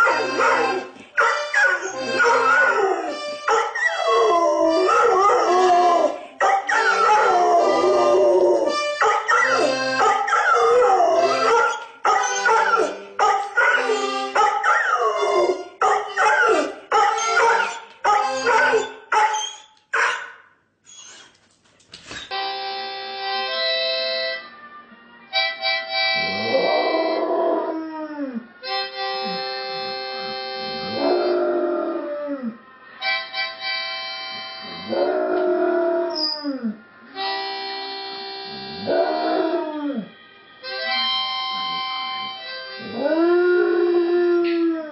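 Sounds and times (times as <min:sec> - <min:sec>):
music: 0:00.0 - 0:19.0, 0:22.3 - 0:44.9
harmonica chords: 0:00.0 - 0:19.6, 0:22.3 - 0:27.5, 0:28.6 - 0:31.6, 0:32.8 - 0:35.2, 0:37.0 - 0:39.8, 0:40.4 - 0:44.4
dog howling and yipping: 0:00.0 - 0:20.2.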